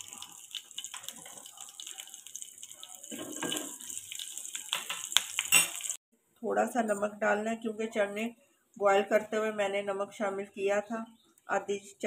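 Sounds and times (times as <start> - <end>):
spices sizzling in hot oil: 0.0 - 6.0.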